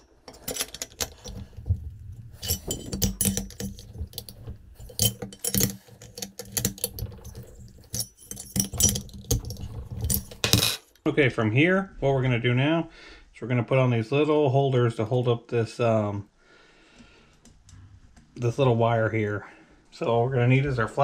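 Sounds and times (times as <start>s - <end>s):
hex key clinking on metal: 0.3s - 11.0s.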